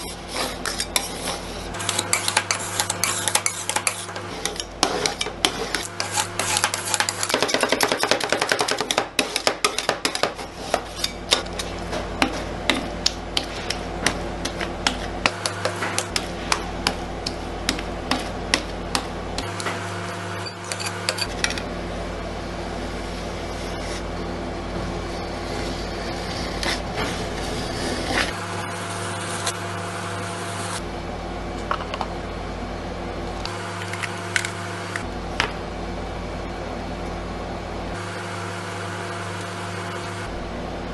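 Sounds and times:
spatulas scraping plate: 0:00.0 - 0:21.6, 0:25.0 - 0:28.4
steady hum: 0:00.0 - 0:40.9.

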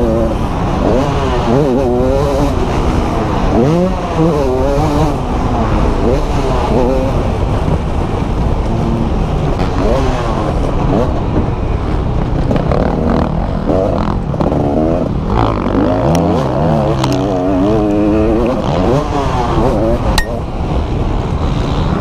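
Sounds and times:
motocross bike engine revving: 0:00.0 - 0:07.4, 0:12.7 - 0:20.4
wind rushing over microphone: 0:00.0 - 0:22.0.

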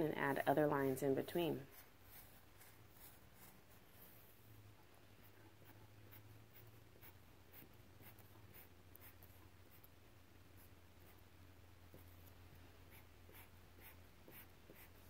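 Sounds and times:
marker drawing on paper: 0:01.6 - 0:04.3, 0:05.2 - 0:11.3, 0:11.9 - 0:15.0.

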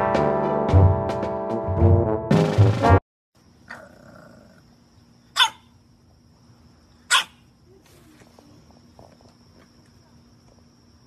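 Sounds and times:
puppy barking: 0:05.3 - 0:05.7, 0:07.1 - 0:07.4.

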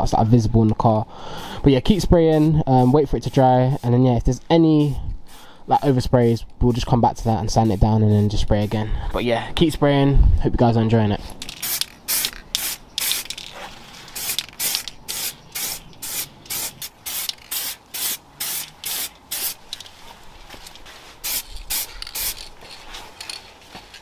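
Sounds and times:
spray paint can hissing bursts: 0:01.8 - 0:04.0, 0:04.6 - 0:08.8, 0:11.4 - 0:19.8, 0:21.2 - 0:23.4.

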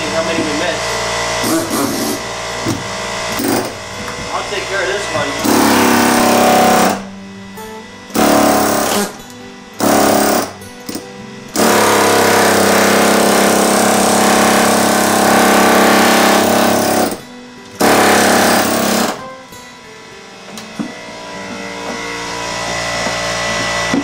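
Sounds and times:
pneumatic air chisel rattling: 0:01.4 - 0:02.2, 0:08.2 - 0:09.2, 0:17.8 - 0:19.2.

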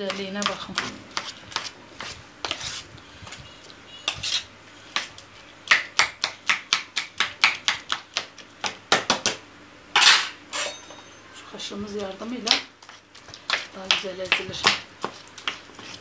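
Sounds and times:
metal spoon clinking on pan: 0:10.0 - 0:11.2.

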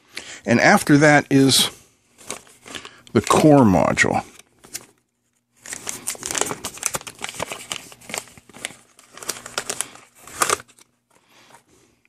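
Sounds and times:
plastic bag crinkling: 0:05.6 - 0:10.9.

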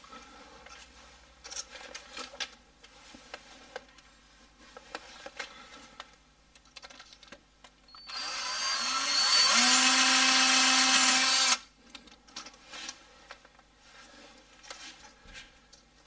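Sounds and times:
cordless drill motor: 0:07.9 - 0:11.6.

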